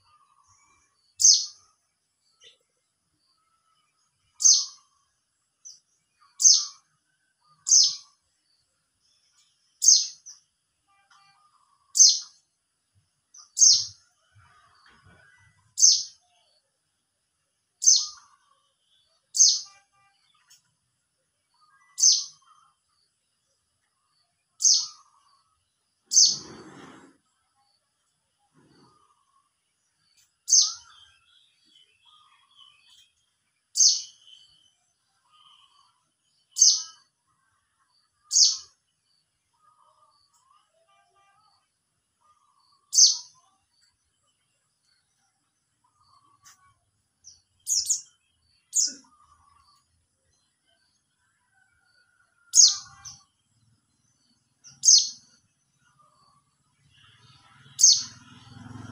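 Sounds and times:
bird chirping high calls: 0:00.0 - 0:01.7, 0:03.4 - 0:05.0, 0:05.7 - 0:06.9, 0:07.5 - 0:08.2, 0:09.8 - 0:10.4, 0:11.3 - 0:12.4, 0:13.4 - 0:14.7, 0:17.8 - 0:20.7, 0:21.5 - 0:22.6, 0:24.6 - 0:25.4, 0:26.1 - 0:27.0, 0:30.2 - 0:37.1, 0:38.1 - 0:38.8, 0:42.2 - 0:43.6, 0:45.8 - 0:49.9, 0:54.6 - 0:58.2.

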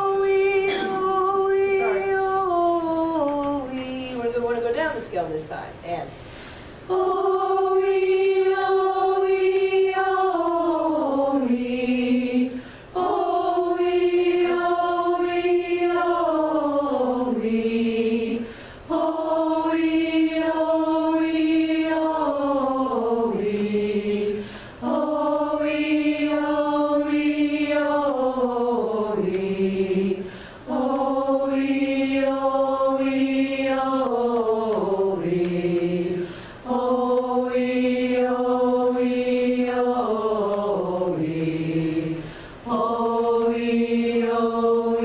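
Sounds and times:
chorus singing in unison: 0:00.0 - 0:04.0, 0:06.8 - 0:45.0
singers breathing: 0:06.2 - 0:06.8, 0:12.5 - 0:13.0, 0:18.4 - 0:18.9, 0:24.4 - 0:24.8, 0:30.2 - 0:30.7, 0:36.2 - 0:36.7, 0:42.2 - 0:42.7.

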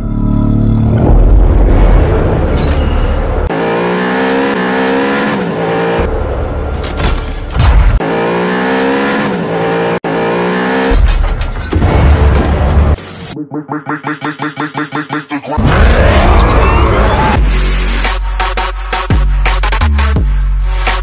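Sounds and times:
heavy bass music: 0:11.8 - 0:21.0.

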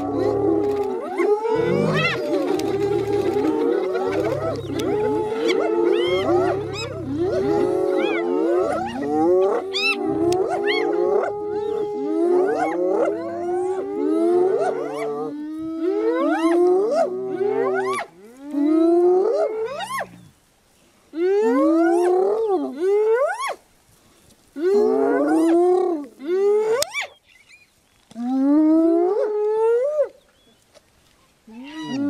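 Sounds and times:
hyenas giggling and whooping: 0:00.0 - 0:11.9
low growl: 0:00.0 - 0:14.4.

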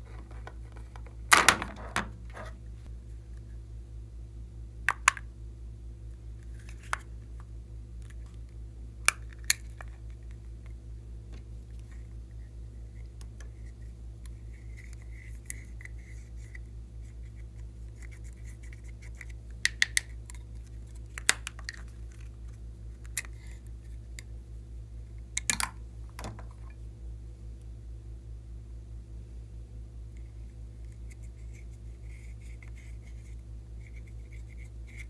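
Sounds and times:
steady low hum: 0:00.0 - 0:35.0.

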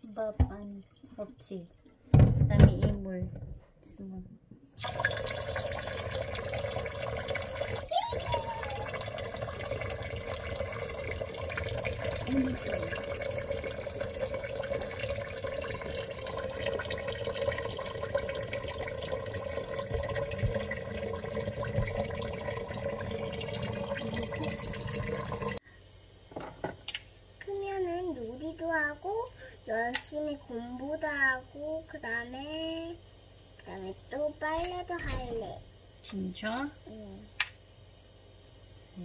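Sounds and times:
tap water running into pot: 0:04.8 - 0:25.6.

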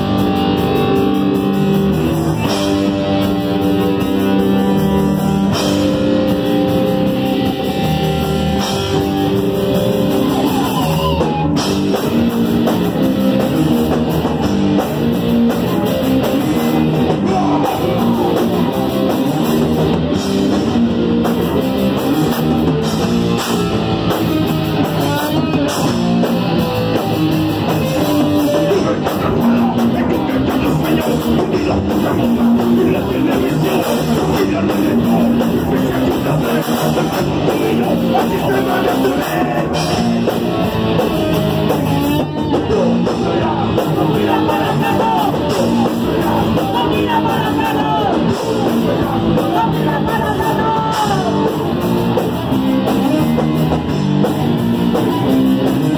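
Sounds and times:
drum kit: 0:00.0 - 0:55.9
electric guitar: 0:00.0 - 0:55.9
shouted vocals: 0:10.0 - 0:12.0, 0:16.4 - 0:18.8, 0:42.5 - 0:51.8.

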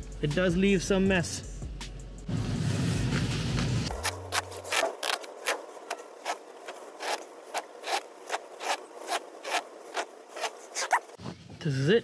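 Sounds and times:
wet foam grip squeaking: 0:03.9 - 0:11.2.

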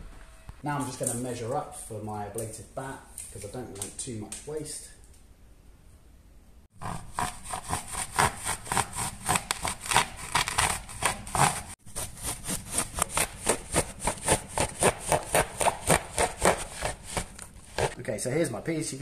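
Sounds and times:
hand saw cutting: 0:06.8 - 0:18.0.

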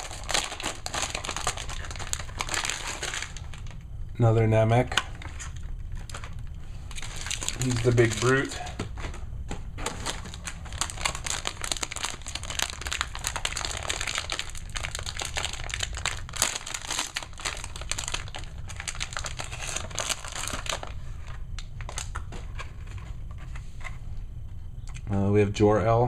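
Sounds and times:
wrapper crinkling: 0:00.0 - 0:03.8, 0:05.2 - 0:09.1, 0:09.8 - 0:22.6.

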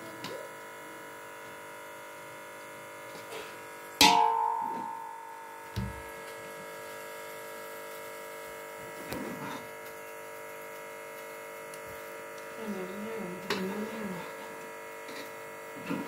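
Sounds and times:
electrical hum: 0:00.0 - 0:16.0
ladle clanging on steel pot: 0:04.0 - 0:05.0.

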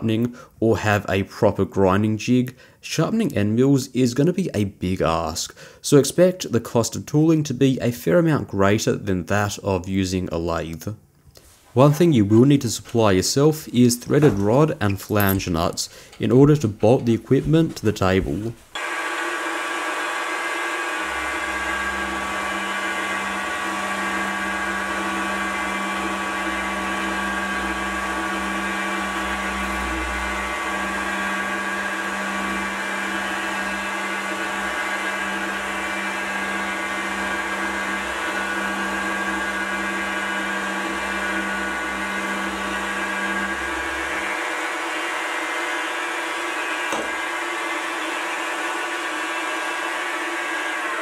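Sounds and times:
end mill cutting metal: 0:18.8 - 0:51.0
milling machine motor whine: 0:18.8 - 0:51.0.

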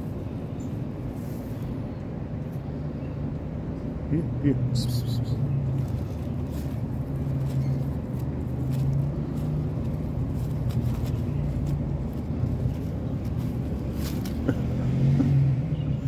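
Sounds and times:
low motor rumble: 0:00.0 - 0:16.0
faint short rustles: 0:05.8 - 0:14.6.

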